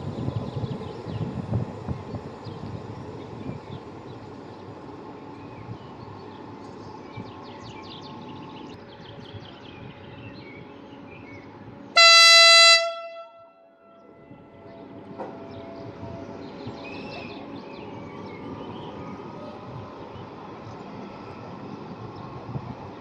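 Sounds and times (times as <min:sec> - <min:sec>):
locomotive horn blast: 0:12.0 - 0:14.4.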